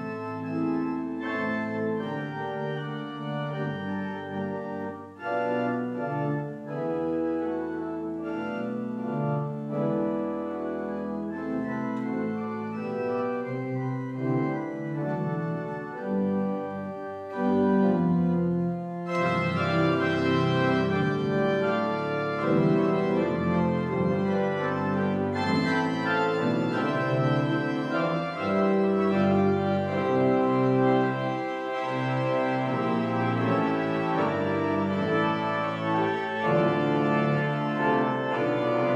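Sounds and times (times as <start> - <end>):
church pipe organ chords: 0.0 - 38.9.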